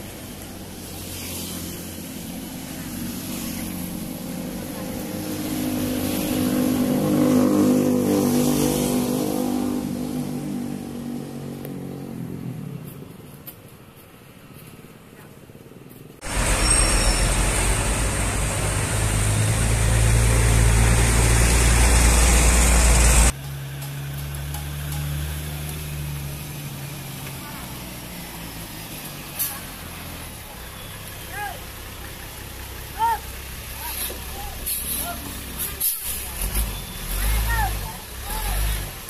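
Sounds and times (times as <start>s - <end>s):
motorcycle passing by: 0.3s - 13.2s, 16.3s - 23.4s
diesel trucks rumbling: 15.8s - 39.0s.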